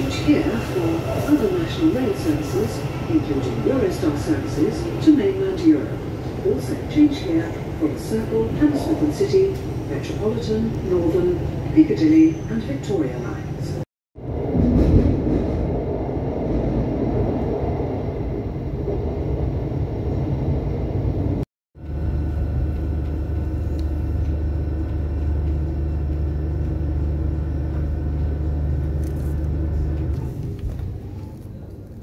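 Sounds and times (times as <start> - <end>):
steady low train hum: 0.0 - 32.0
train rumbling through tunnel: 0.0 - 32.0.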